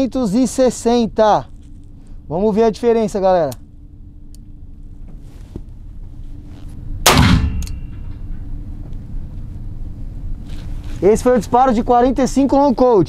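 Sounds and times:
gunshot echo: 0:07.0 - 0:08.0
revolver gunshot: 0:07.0 - 0:08.0.

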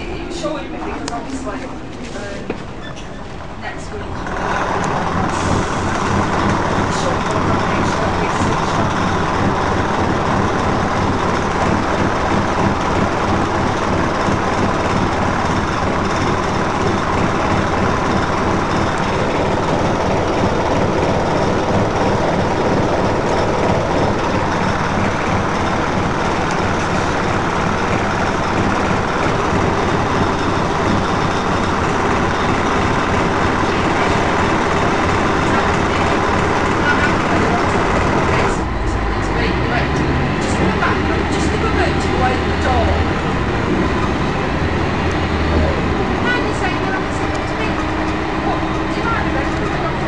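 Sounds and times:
bus diesel engine idling: 0:00.0 - 0:50.0.

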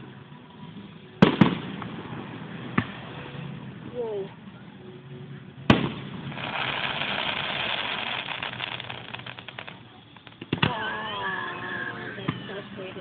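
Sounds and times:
fireworks crackling and hissing: 0:00.0 - 0:04.6, 0:05.6 - 0:13.0
firework bangs: 0:01.2 - 0:03.6, 0:05.7 - 0:11.4.

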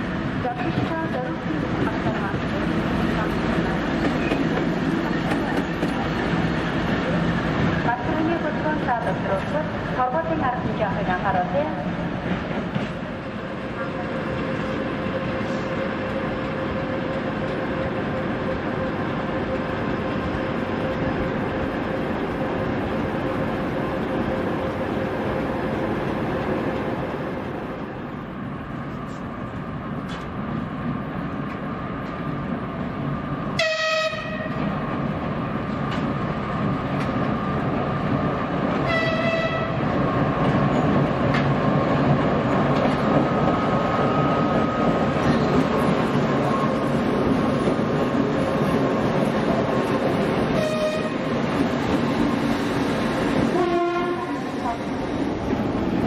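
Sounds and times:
diesel locomotive engines whining: 0:00.0 - 0:56.0
locomotive horn blasts: 0:33.6 - 0:34.6, 0:38.8 - 0:39.8, 0:50.5 - 0:51.2, 0:53.5 - 0:54.5.

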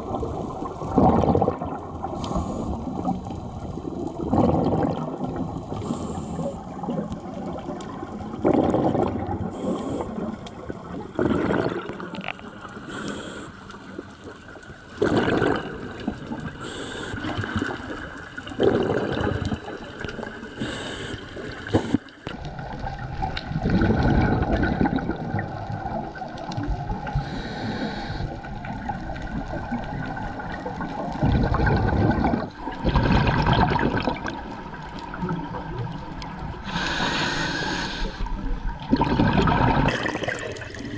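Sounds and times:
exhaled bubbles gurgling: 0:00.0 - 0:40.9
steady water hiss: 0:01.8 - 0:23.0, 0:26.2 - 0:31.1, 0:36.3 - 0:38.6, 0:39.9 - 0:40.9
diver breathing through regulator: 0:02.1 - 0:03.0, 0:05.7 - 0:06.6, 0:09.5 - 0:10.4, 0:12.8 - 0:13.7, 0:16.6 - 0:17.6, 0:20.6 - 0:22.1, 0:27.1 - 0:28.4, 0:36.6 - 0:38.3.

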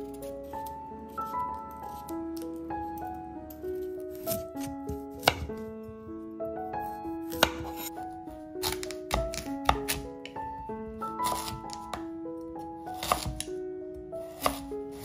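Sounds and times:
soft background melody: 0:00.0 - 0:15.0
knife slicing on wooden board: 0:07.3 - 0:07.9, 0:11.2 - 0:11.9, 0:13.0 - 0:13.5, 0:14.4 - 0:15.0.

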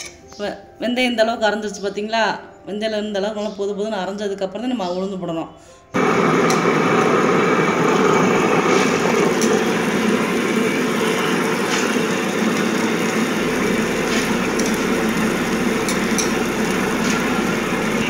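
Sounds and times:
wet grinder motor whirring: 0:06.0 - 0:18.0.

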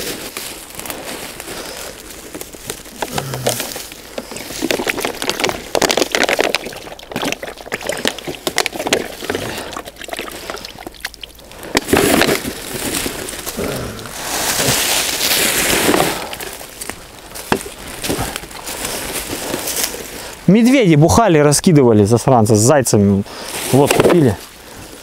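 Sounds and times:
dry leaves crunching underfoot: 0:00.0 - 0:06.6, 0:11.5 - 0:20.3
plastic bag crinkling: 0:00.0 - 0:20.4.

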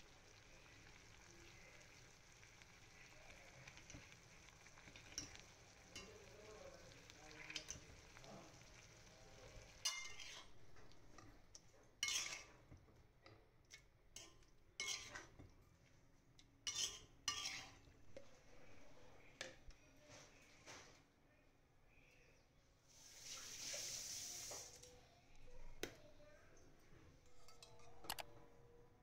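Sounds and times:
faint frying sizzle: 0:00.0 - 0:13.0, 0:22.8 - 0:25.9
spatula stirring in a pan: 0:00.0 - 0:16.0, 0:16.6 - 0:19.6, 0:22.9 - 0:24.8, 0:27.2 - 0:28.0
spatula scraping and clinking metal: 0:09.8 - 0:10.7, 0:12.0 - 0:12.6, 0:14.2 - 0:15.4, 0:16.6 - 0:17.8, 0:27.2 - 0:28.3.

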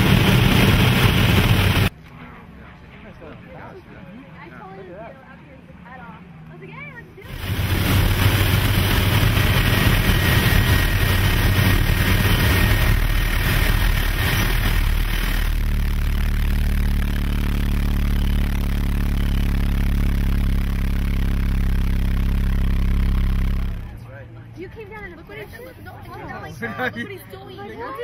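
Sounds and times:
turboprop engines droning: 0:00.0 - 0:01.9, 0:07.2 - 0:26.4
rushing wind: 0:07.3 - 0:15.7.

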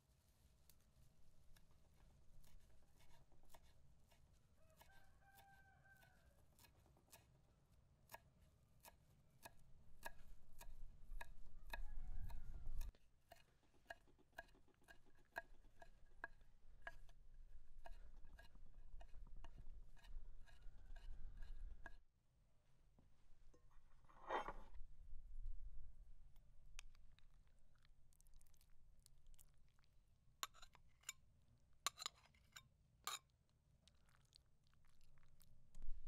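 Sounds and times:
rooster crowing: 0:04.6 - 0:06.4, 0:11.6 - 0:12.9.

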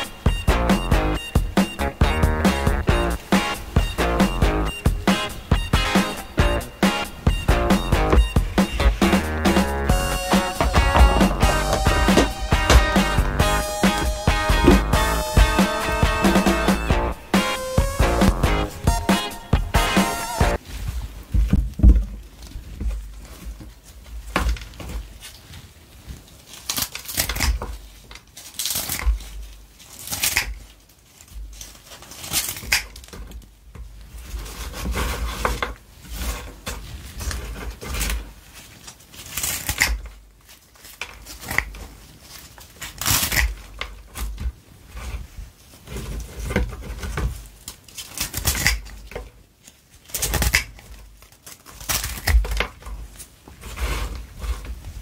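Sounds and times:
scissors snipping crunchy food: 0:39.2 - 0:40.0, 0:42.9 - 0:43.5, 0:47.9 - 0:48.9.

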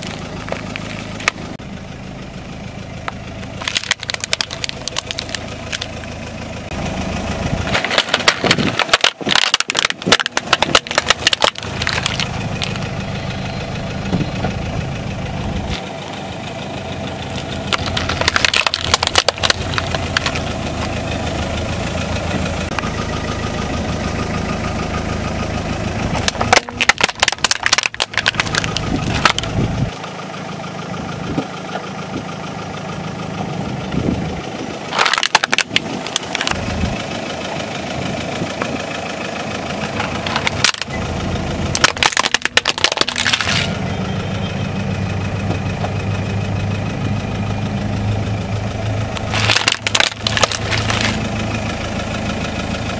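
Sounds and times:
tyre crunching objects: 0:00.0 - 0:01.6, 0:03.5 - 0:06.0, 0:07.6 - 0:12.9, 0:17.3 - 0:21.0, 0:26.1 - 0:29.7, 0:34.9 - 0:36.6, 0:40.0 - 0:41.0, 0:41.7 - 0:43.8, 0:49.2 - 0:51.3
car engine idling: 0:00.0 - 0:52.9.

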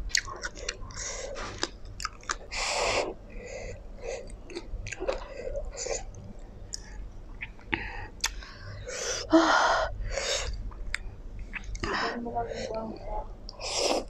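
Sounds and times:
wet chewing: 0:00.0 - 0:03.2, 0:04.2 - 0:08.4.

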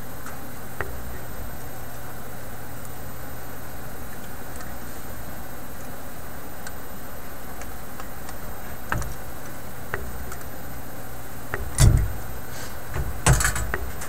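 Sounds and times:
steady low hum: 0:00.0 - 0:14.0
knocks of parts: 0:11.5 - 0:12.2, 0:12.9 - 0:14.0.

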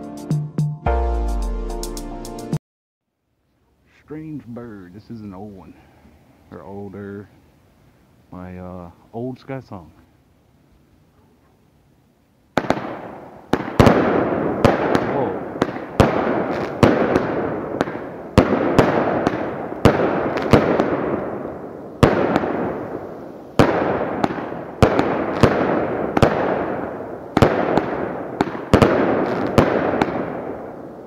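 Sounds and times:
fireworks bangs with crackle: 0:12.5 - 0:31.0.

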